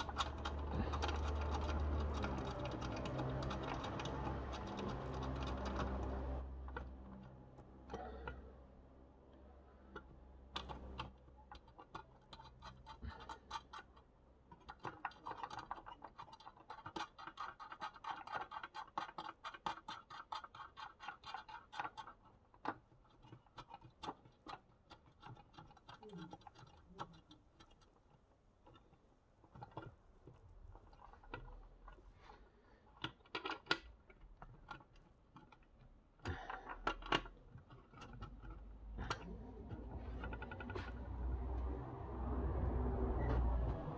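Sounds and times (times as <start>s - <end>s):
steel cable scratching: 0.0s - 7.6s, 10.6s - 32.3s, 37.1s - 43.9s.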